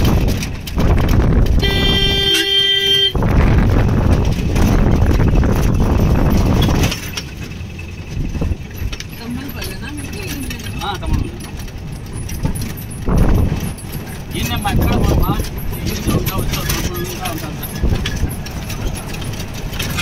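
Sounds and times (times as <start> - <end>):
jeep engine running: 0.0 - 20.0
wind and tyre rush: 0.0 - 20.0
car horn blast: 1.6 - 3.2.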